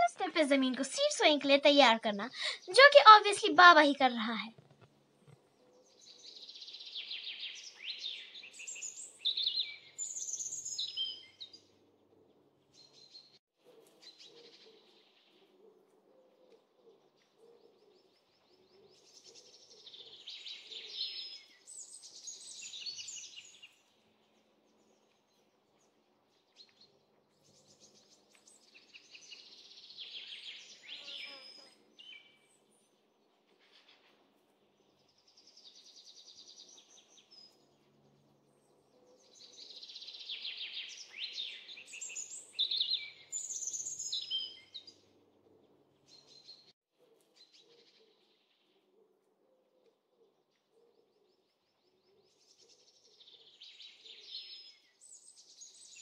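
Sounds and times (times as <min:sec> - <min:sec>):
faint outdoor background noise: 0:00.0 - 0:56.0
songbird twittering trills: 0:05.8 - 0:11.7, 0:38.5 - 0:45.1.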